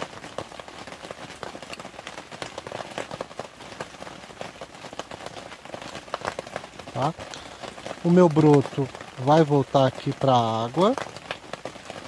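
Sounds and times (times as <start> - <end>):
dense crackling patter of ticks: 0.0 - 12.0.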